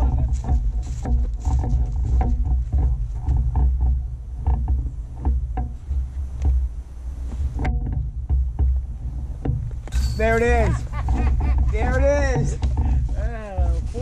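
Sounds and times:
footsteps on dry leaves: 0.0 - 3.2
microphone rubbing rumble: 0.0 - 14.0.

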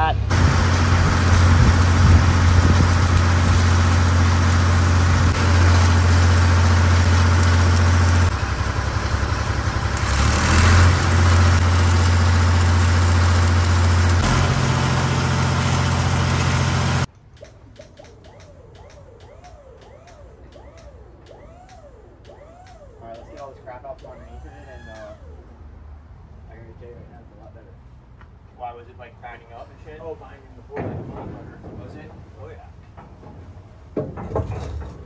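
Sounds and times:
engine droning: 0.2 - 26.0
welding arc crackling and hissing: 0.3 - 17.1.

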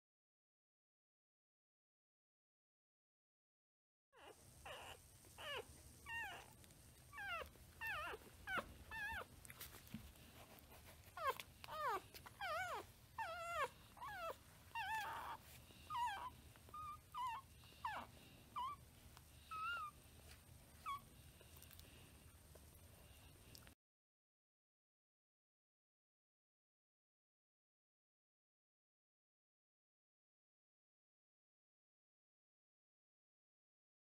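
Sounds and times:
puppies whimpering and squealing: 4.2 - 22.2.

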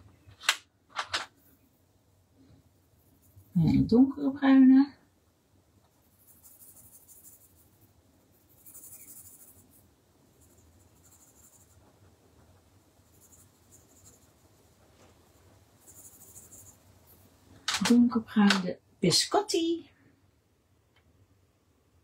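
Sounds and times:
coloured pencil scratching on paper: 2.8 - 3.9, 5.9 - 17.4.

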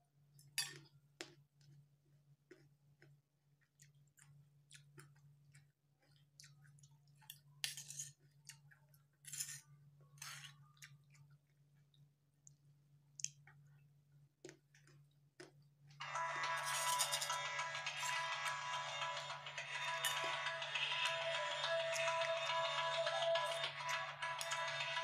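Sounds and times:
close chewing with wet smacks: 2.5 - 7.4.

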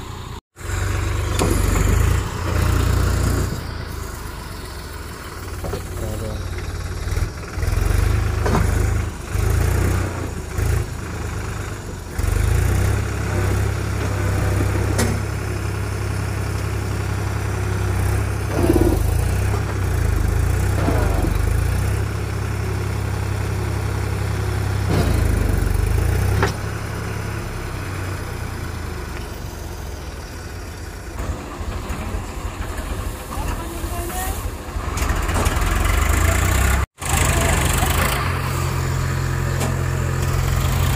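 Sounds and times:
tractor diesel engines straining: 0.0 - 40.9.

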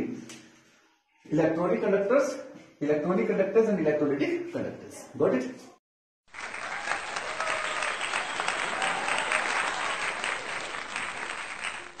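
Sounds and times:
applause: 6.3 - 12.0.

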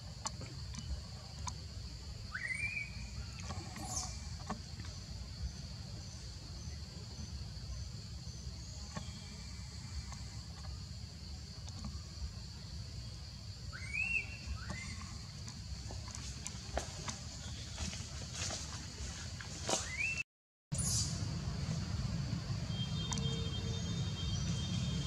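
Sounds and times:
high insect drone: 20.8 - 25.0.

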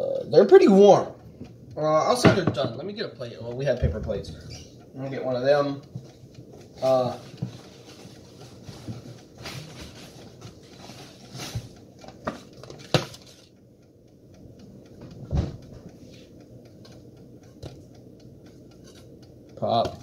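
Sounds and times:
heavy thump: 3.8 - 4.5, 15.2 - 15.8.

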